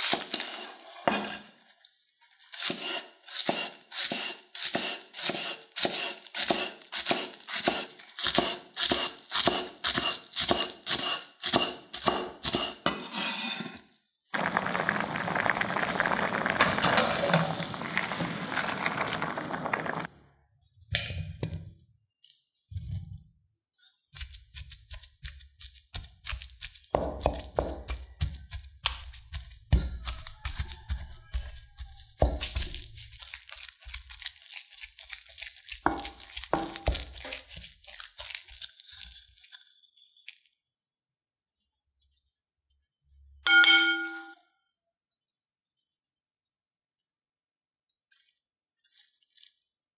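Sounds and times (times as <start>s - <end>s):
knife chopping on wooden board: 2.6s - 12.8s, 24.2s - 32.8s, 35.8s - 37.6s
water boiling in a pan: 14.4s - 20.1s.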